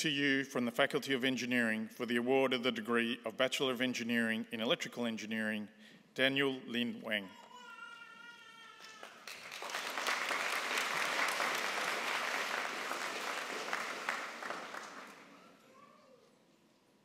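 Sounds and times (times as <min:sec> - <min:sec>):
audience applauding: 0:08.9 - 0:15.6.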